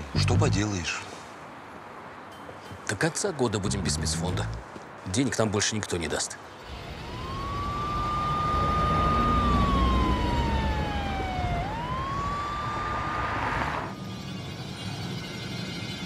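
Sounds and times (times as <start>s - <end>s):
vehicle engines rumbling: 0.0s - 14.0s
police siren wailing: 6.7s - 13.9s.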